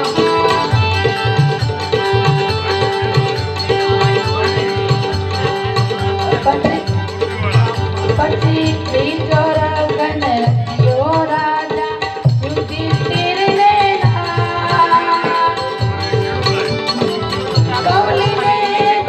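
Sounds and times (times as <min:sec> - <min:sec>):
hand drum beat: 0:00.0 - 0:19.0
harmonium: 0:00.0 - 0:19.0
indian banjo: 0:00.0 - 0:19.0
woman singing: 0:08.0 - 0:16.3, 0:17.6 - 0:19.0.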